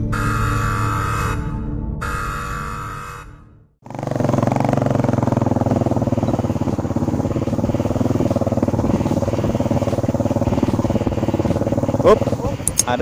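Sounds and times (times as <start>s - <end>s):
motorcycle engine running: 3.8s - 13.0s.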